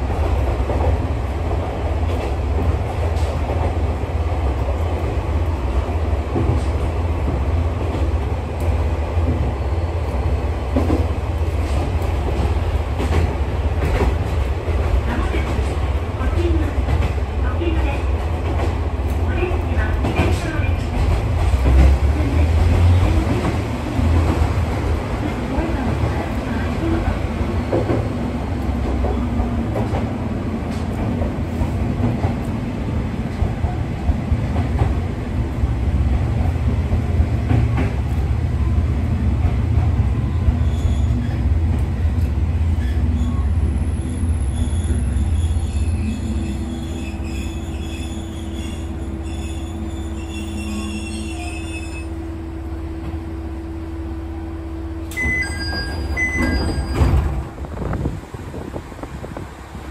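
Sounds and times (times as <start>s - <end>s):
diesel railcar rumbling: 0.0s - 59.9s
high wheel squeals: 42.8s - 52.2s, 55.2s - 57.2s
short beeps: 55.1s - 57.1s.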